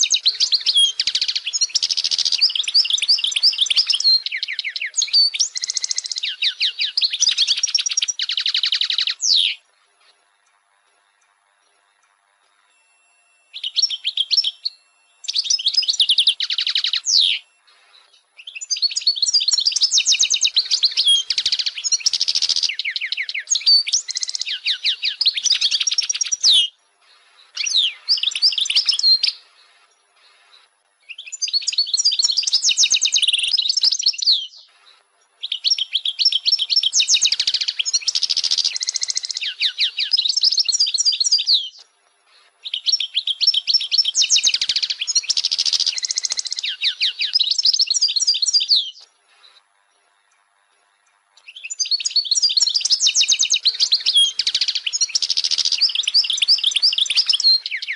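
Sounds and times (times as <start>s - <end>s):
goldfinch twittering and trills: 0.0s - 57.9s.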